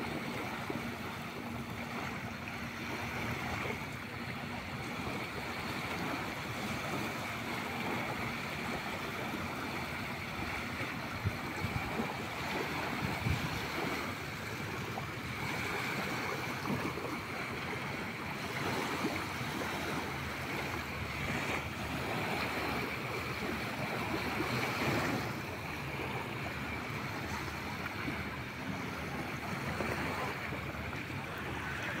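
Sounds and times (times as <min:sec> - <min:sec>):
small waves lapping: 0:00.0 - 0:32.0
wind on microphone: 0:02.5 - 0:32.0.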